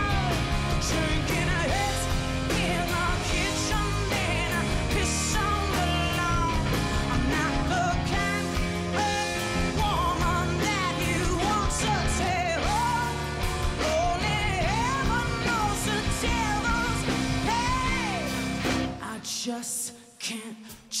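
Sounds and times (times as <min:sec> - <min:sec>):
live rock band playing: 0:00.0 - 0:19.2
woman singing: 0:00.0 - 0:21.0.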